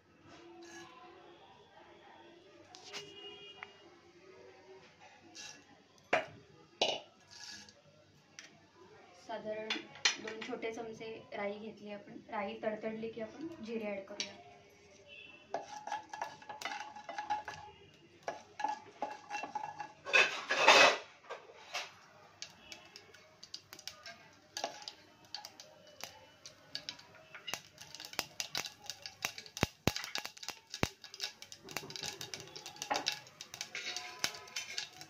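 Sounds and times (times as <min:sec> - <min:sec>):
wooden spatula scraping pot: 0:00.6 - 0:00.9, 0:05.4 - 0:05.6, 0:07.2 - 0:07.8, 0:15.5 - 0:35.0
mustard seeds crackling in hot oil: 0:15.5 - 0:20.9, 0:21.6 - 0:35.0.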